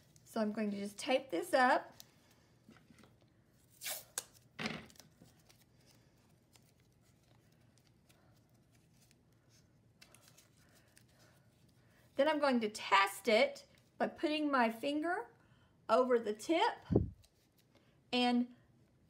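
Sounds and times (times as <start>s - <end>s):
tape rustling: 1.9s - 11.8s
tape tearing: 3.7s - 5.6s.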